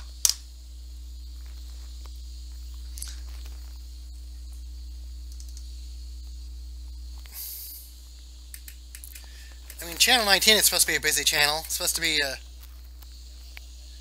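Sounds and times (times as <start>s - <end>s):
low hum: 0.0s - 14.0s
radio static hiss: 0.0s - 14.0s.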